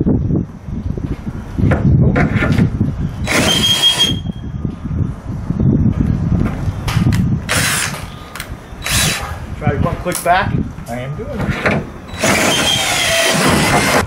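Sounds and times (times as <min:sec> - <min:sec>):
power drill under load: 0:03.2 - 0:04.2, 0:07.5 - 0:08.0, 0:08.8 - 0:09.2, 0:12.1 - 0:14.0
drill bit squealing: 0:03.2 - 0:04.4, 0:08.8 - 0:09.2, 0:12.1 - 0:14.0.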